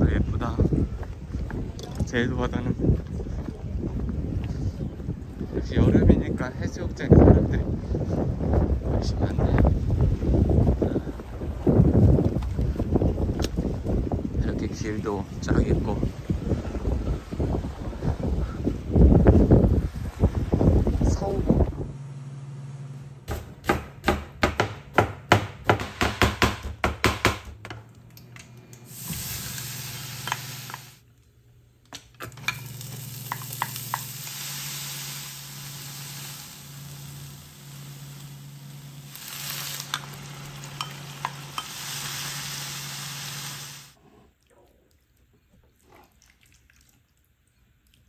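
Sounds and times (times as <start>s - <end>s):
food sizzling in frying pan: 28.9s - 31.0s, 32.4s - 43.9s.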